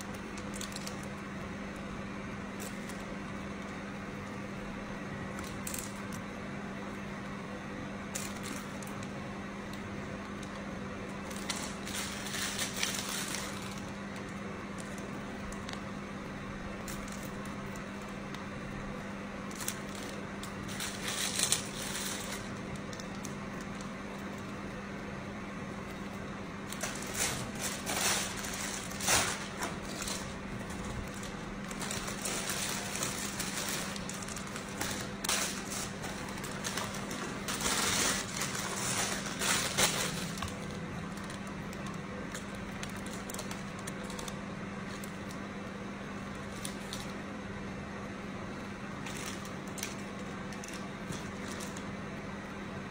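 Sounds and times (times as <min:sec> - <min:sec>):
plastic bag crinkling: 0:00.0 - 0:01.4, 0:10.2 - 0:15.9, 0:16.6 - 0:25.0, 0:25.8 - 0:45.4, 0:46.3 - 0:47.2, 0:49.0 - 0:51.9.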